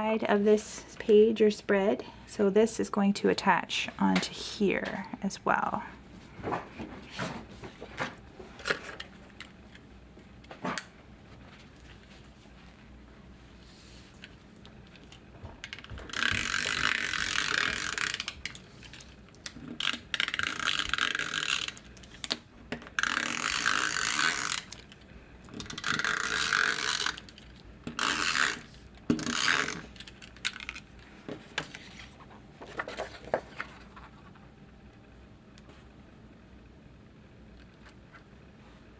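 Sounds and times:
tape runner rasping on paper: 15.7 - 19.1, 25.6 - 27.4, 28.0 - 30.0.

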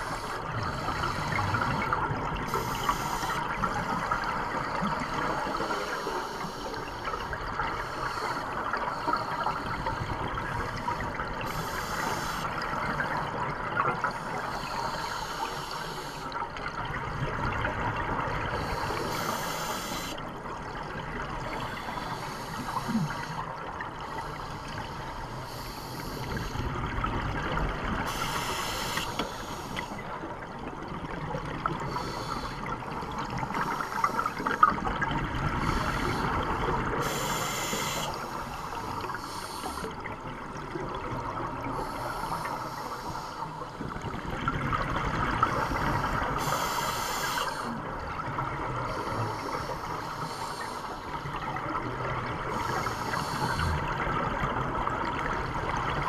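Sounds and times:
regulator hiss on inhale: 0.0 - 12.9, 14.0 - 16.4, 18.5 - 20.2, 21.5 - 23.4, 24.1 - 26.7, 28.0 - 30.0, 31.9 - 32.7, 33.4 - 34.8, 35.6 - 40.1, 41.8 - 44.0, 45.4 - 47.8, 48.9 - 51.3, 52.5 - 54.0
watery rumble: 0.0 - 56.0
bubbling on exhale: 52.5 - 54.5.

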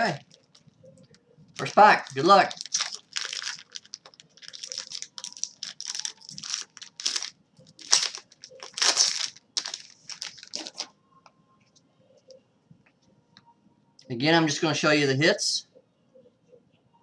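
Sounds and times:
foil wrapper tearing and crinkling: 0.0 - 0.6, 1.6 - 10.9.

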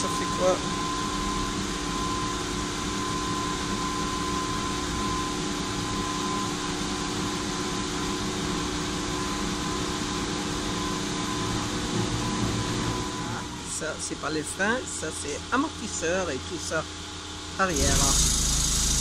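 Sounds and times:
machine humming with whine: 0.0 - 5.4, 17.6 - 19.0.

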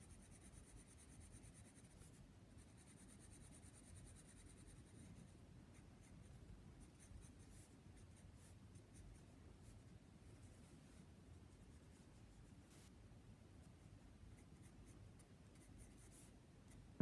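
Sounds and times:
pencil scratching on paper: 0.0 - 6.2, 14.3 - 16.8.

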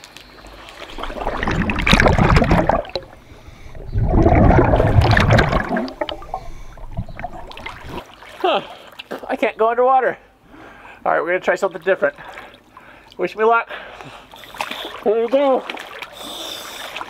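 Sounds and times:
quiet underwater gurgle: 0.5 - 8.3
air bubbling underwater: 0.9 - 8.0.

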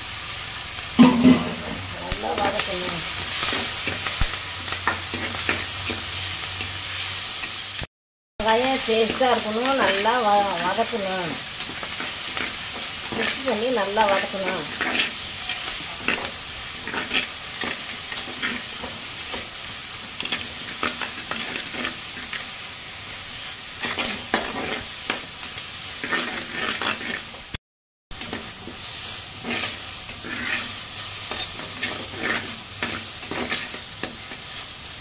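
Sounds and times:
vegetables sizzling in oil: 0.0 - 35.0
metal spatula scraping pot: 1.0 - 2.6, 11.6 - 19.0, 26.0 - 27.4, 29.4 - 34.2.

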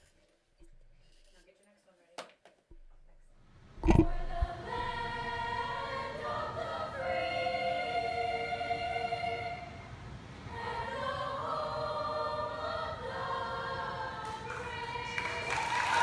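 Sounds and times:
children's chorus singing: 4.3 - 16.0.

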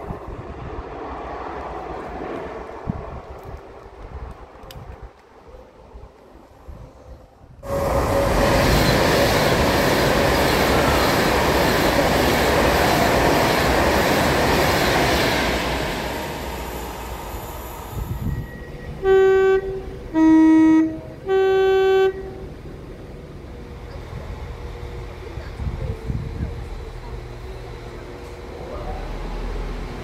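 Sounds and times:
electric train passing: 0.0 - 30.0
train horn high and low tones: 7.6 - 9.1, 18.1 - 22.7.

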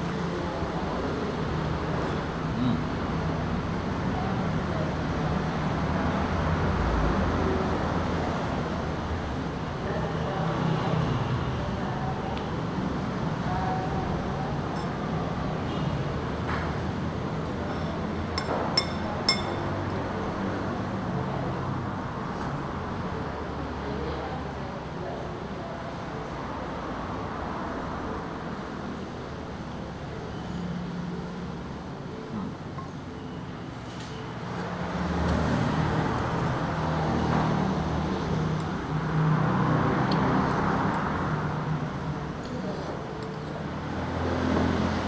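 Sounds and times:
spoon clinking on ceramic bowl: 18.4 - 19.7.

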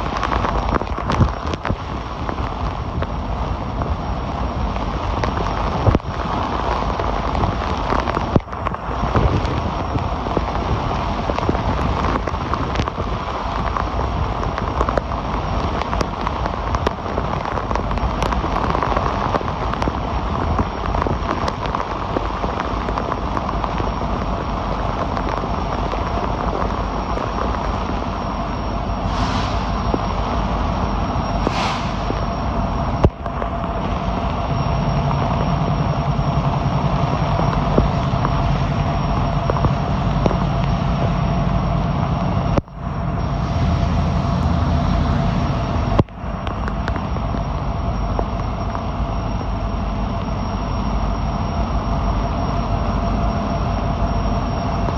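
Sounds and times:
heavy rain pouring: 0.0 - 54.9
low thunder rumble: 0.0 - 54.9
raindrops striking close by: 0.0 - 54.9
wind: 0.0 - 54.9.

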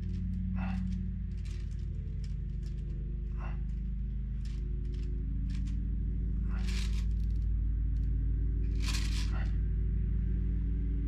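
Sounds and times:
lawnmower engine droning: 0.0 - 11.0
hands and tools scraping clay: 6.5 - 7.4, 8.7 - 9.6.

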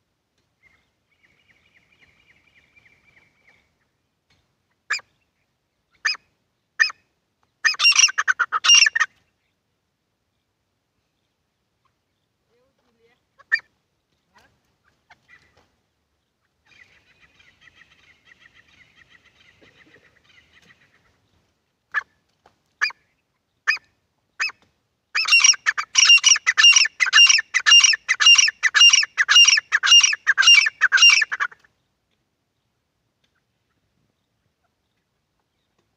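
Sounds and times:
bird calling: 7.6 - 9.1, 25.2 - 31.7.

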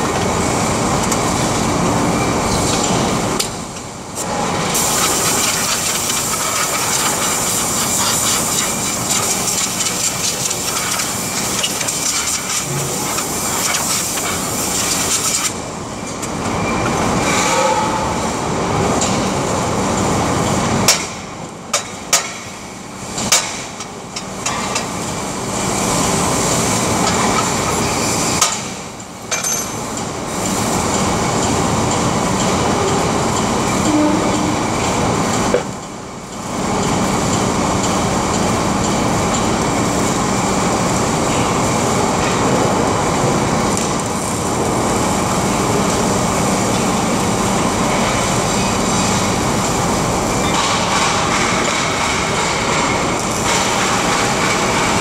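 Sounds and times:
sharp metallic clanks: 29.3 - 30.0.

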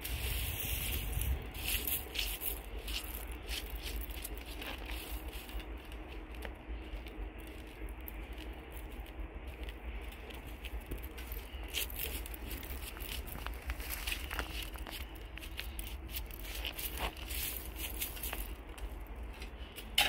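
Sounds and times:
hand scraping gravel: 0.0 - 20.0
low rumble: 0.0 - 20.0.

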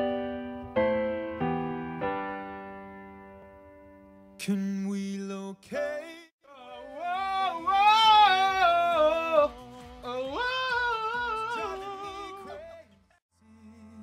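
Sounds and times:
person singing wordlessly: 4.4 - 14.0.

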